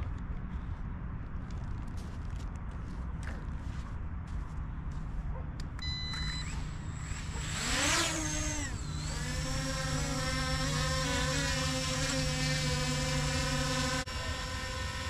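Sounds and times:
drone beep: 5.8s - 6.8s
drone propellers humming: 5.8s - 15.0s.

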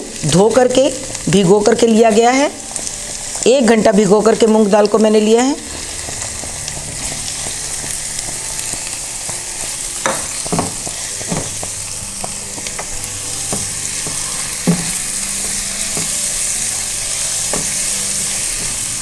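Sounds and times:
lentils sizzling in hot oil: 0.0s - 19.0s
spatula knocking against pan: 10.0s - 16.2s, 17.5s - 17.8s.

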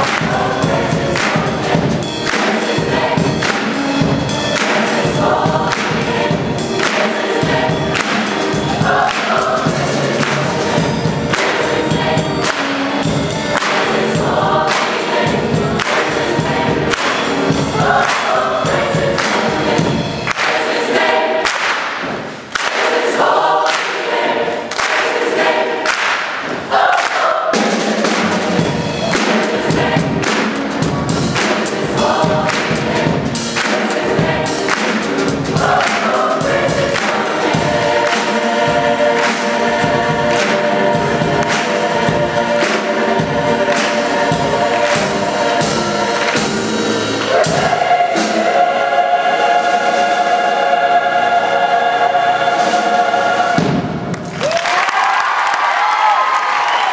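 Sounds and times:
hand claps: 0.0s - 0.4s, 1.2s - 1.5s, 2.2s - 2.7s, 3.4s - 3.9s, 4.5s - 5.0s, 6.8s - 7.2s, 7.9s - 8.5s, 9.1s - 9.5s, 15.8s - 16.1s, 16.9s - 17.2s, 18.0s - 18.4s, 20.3s - 20.6s, 21.4s - 23.1s, 23.7s - 24.1s, 24.7s - 25.2s, 25.8s - 27.2s, 31.4s - 31.8s, 33.6s - 34.0s, 34.6s - 36.2s, 37.0s - 37.3s
choir singing gospel song: 0.0s - 54.5s
piano: 0.0s - 56.9s.

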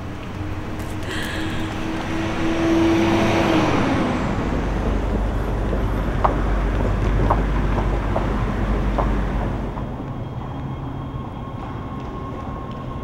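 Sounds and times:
passing vehicle rumble: 0.0s - 10.1s.

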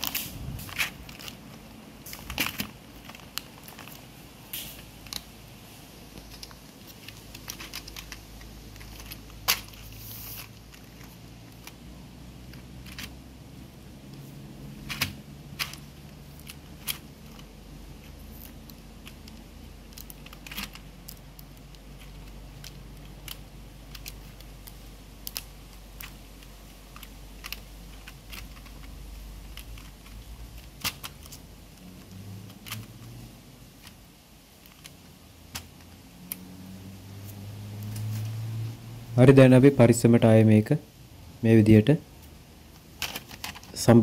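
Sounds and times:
plastic keyboard parts clicking: 0.0s - 5.3s, 6.2s - 11.8s, 12.4s - 13.2s, 14.8s - 36.4s, 42.8s - 44.0s
low steady hum: 0.0s - 44.0s.

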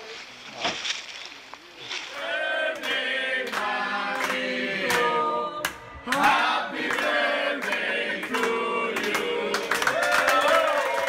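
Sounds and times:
group of voices singing: 2.1s - 10.0s
hands clapping: 2.8s - 11.0s.

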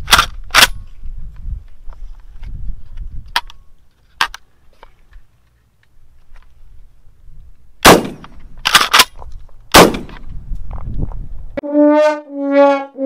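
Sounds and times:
shotgun shots: 7.8s - 8.4s, 9.7s - 10.2s
brass band music: 11.6s - 13.0s.

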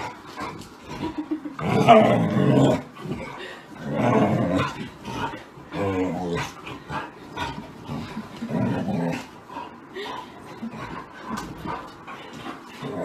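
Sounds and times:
dog growling and yowling: 0.5s - 9.3s.

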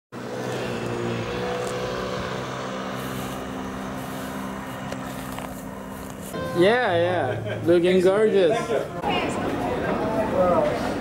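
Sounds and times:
motor drone: 0.2s - 6.4s.

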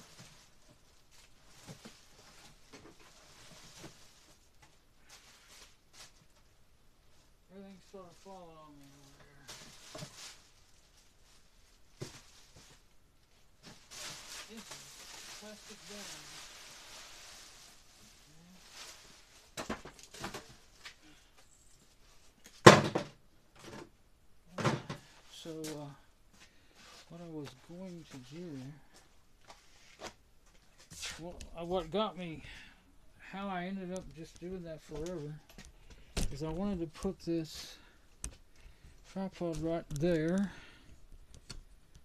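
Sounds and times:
faint rustling: 0.0s - 22.7s.

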